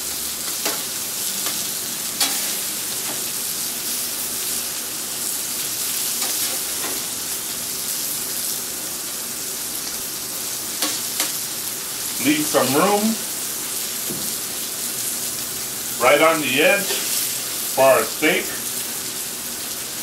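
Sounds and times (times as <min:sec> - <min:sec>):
food sizzling on griddle: 0:00.0 - 0:20.0.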